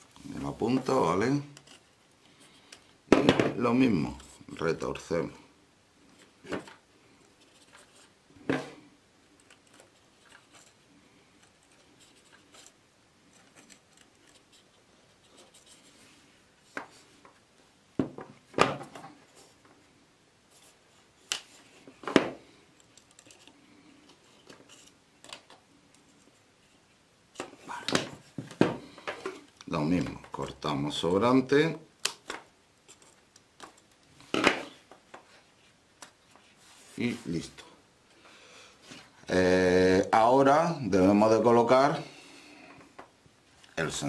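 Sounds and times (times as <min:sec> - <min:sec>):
faint scratching and rubbing: 0:07.2 - 0:08.9, 0:09.5 - 0:17.2, 0:35.3 - 0:37.7.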